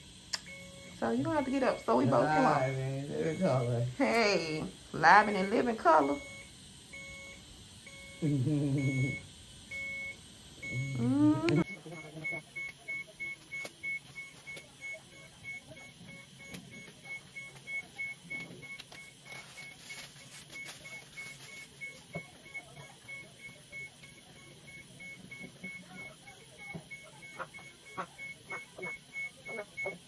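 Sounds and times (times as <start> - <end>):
medical equipment alarm beeping: 0.0 - 30.0.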